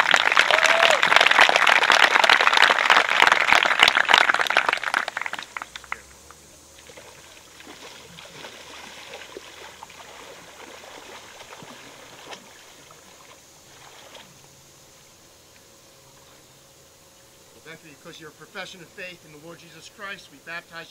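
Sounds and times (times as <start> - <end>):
water sloshing and trickling: 6.7 - 15.1
small splashes: 6.8 - 14.5.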